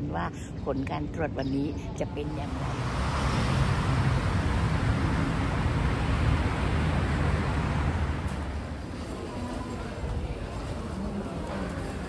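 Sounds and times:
road traffic rumble and hiss: 0.0s - 12.0s.

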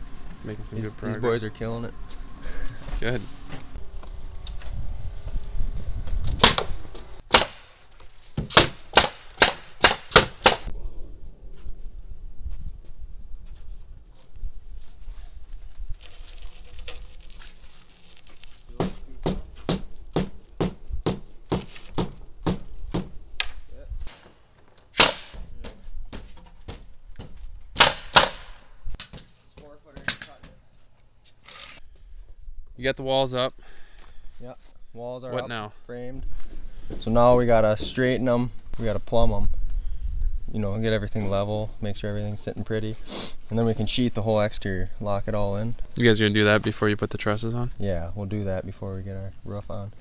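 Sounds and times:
nail gun firing: 6.4s - 7.8s, 8.4s - 10.7s, 24.9s - 25.5s, 27.8s - 29.3s
knocks of wood work: 18.7s - 30.7s.

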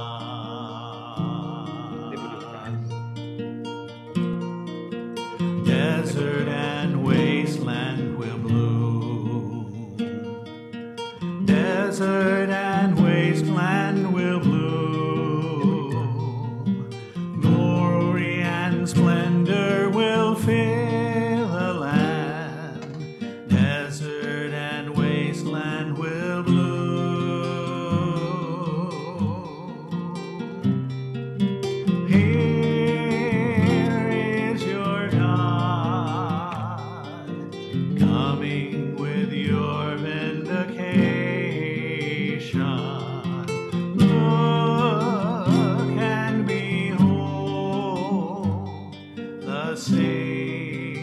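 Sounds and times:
person singing: 0.0s - 3.2s, 5.2s - 10.5s, 11.2s - 51.0s
acoustic guitar playing a hymn: 0.0s - 51.0s.

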